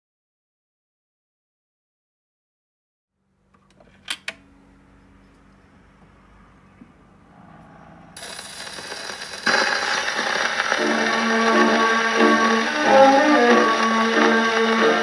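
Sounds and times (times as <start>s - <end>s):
faint steady hum: 3.2s - 15.0s
record surface hiss: 3.2s - 15.0s
gramophone music: 8.2s - 15.0s.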